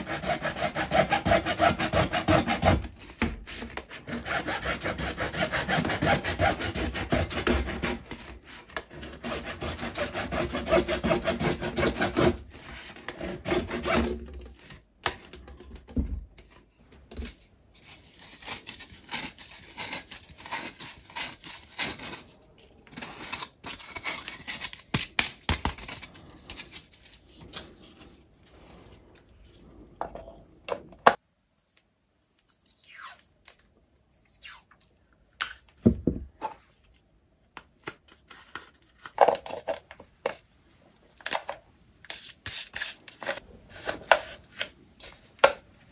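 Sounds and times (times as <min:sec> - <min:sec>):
hacksaw cutting plastic pipe: 0:00.0 - 0:15.2, 0:18.3 - 0:22.2.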